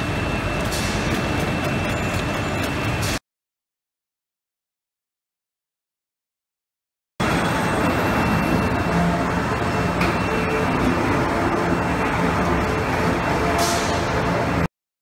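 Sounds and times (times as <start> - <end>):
machinery humming with high whine: 0.0 - 3.2, 7.2 - 14.7.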